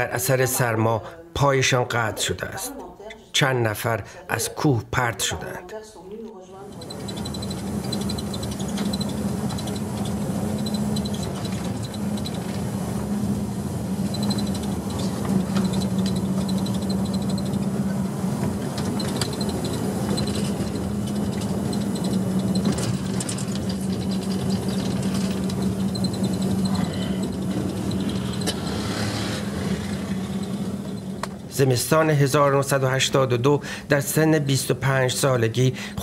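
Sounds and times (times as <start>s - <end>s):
vehicle running hum and rumble: 6.6s - 31.6s.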